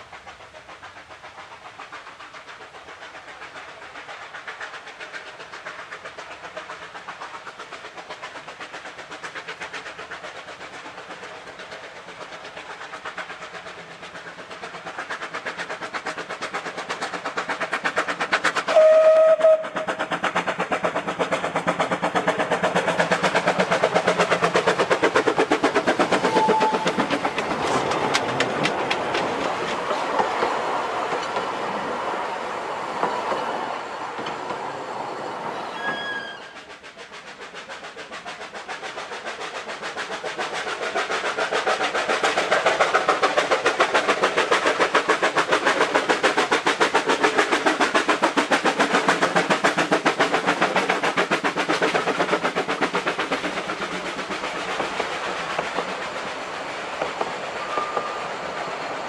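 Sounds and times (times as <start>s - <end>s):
steam locomotive exhaust beats: 0.0s - 59.0s
train wheels clicking over rail joints: 0.0s - 59.0s
steam whistle blast: 18.7s - 19.8s, 26.3s - 26.9s, 35.5s - 36.6s, 57.6s - 58.3s.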